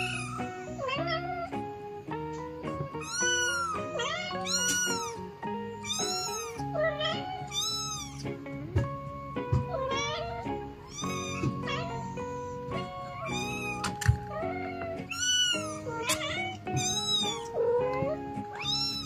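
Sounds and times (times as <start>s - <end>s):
kitten meowing: 0.0s - 1.6s, 2.3s - 8.4s, 9.5s - 19.0s
background music: 0.0s - 19.0s.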